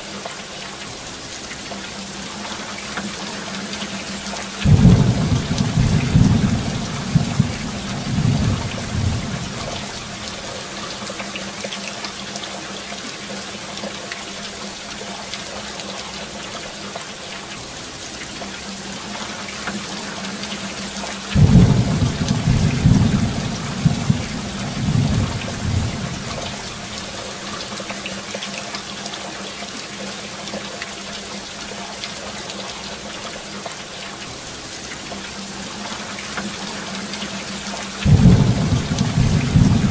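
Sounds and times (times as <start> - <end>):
steady rain: 0.0 - 39.9
thunder rumbling: 4.6 - 10.5, 21.4 - 27.2, 38.0 - 39.9.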